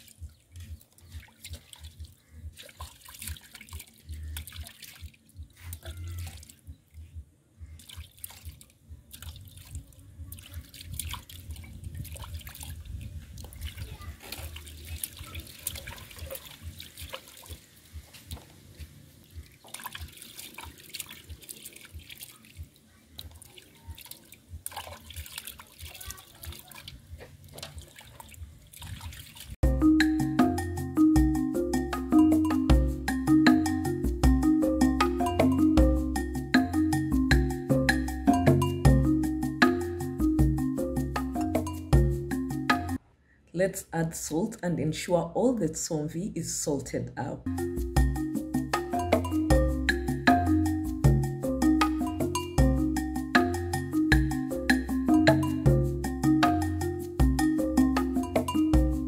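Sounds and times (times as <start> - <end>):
water sloshing in metal basin: 0.0 - 7.0, 7.7 - 29.6.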